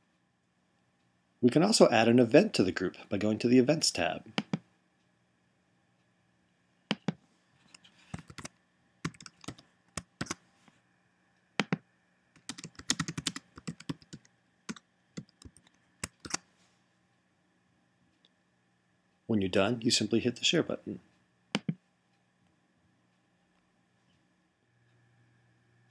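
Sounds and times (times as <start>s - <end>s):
typing on computer keyboard: 4.4s - 4.6s, 6.9s - 10.4s, 12.4s - 16.4s.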